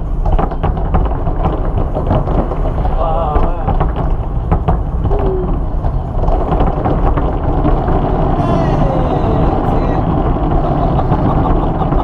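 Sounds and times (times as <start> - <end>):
fireworks booming and crackling: 0.0 - 12.0.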